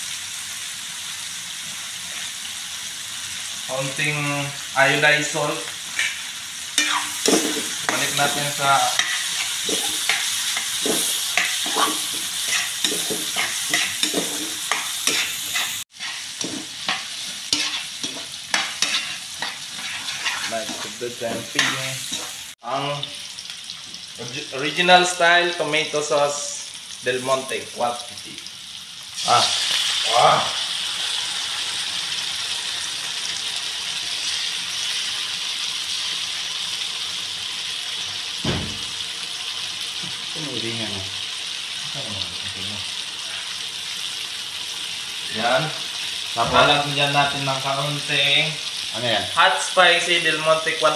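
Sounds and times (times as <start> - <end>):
vegetables sizzling in oil: 0.0 - 50.9
spatula scraping and knocking pan: 6.8 - 22.4
short knock: 38.4 - 38.9.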